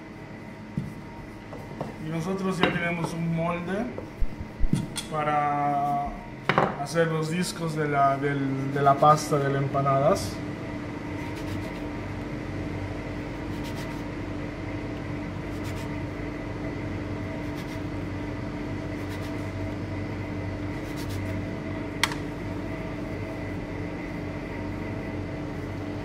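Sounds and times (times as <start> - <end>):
kitchen machine hum: 0.0 - 26.0
ring cutter scraping through dough: 20.8 - 21.4.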